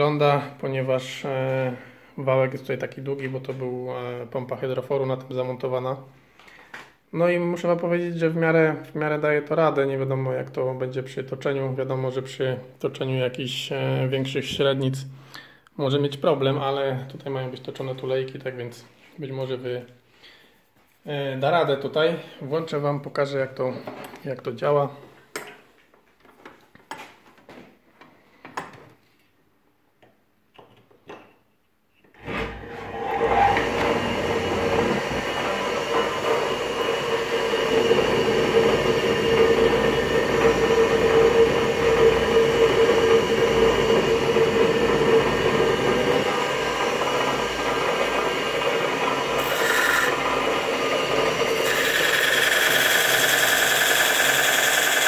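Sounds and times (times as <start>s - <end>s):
wood rubbing squeal: 32.2s - 39.9s, 49.2s - 55.0s
lathe motor running: 32.2s - 55.0s.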